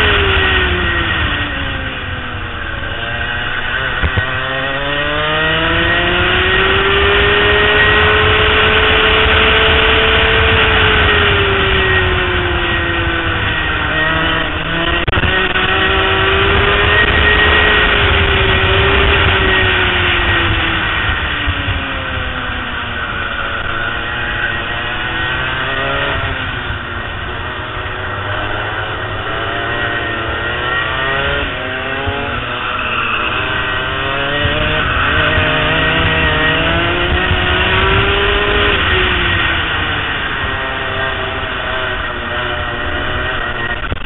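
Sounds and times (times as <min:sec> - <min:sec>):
go-kart engine revving: 0:00.0 - 0:44.0.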